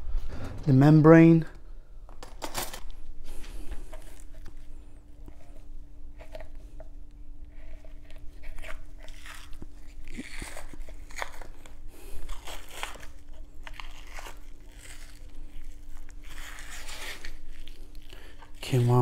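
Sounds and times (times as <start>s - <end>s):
steady hum: 0.0s - 19.0s
wet crackly membrane tearing: 8.2s - 19.0s.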